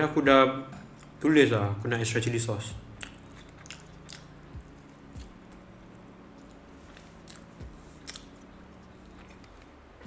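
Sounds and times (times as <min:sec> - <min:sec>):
low hum: 0:02.6 - 0:10.0
person chewing crispy food: 0:02.9 - 0:10.0.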